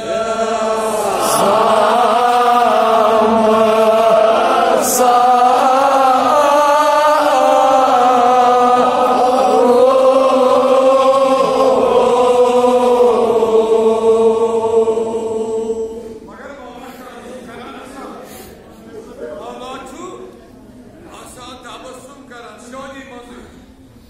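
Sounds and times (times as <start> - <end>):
men chanting an elegy: 0.0 - 18.2.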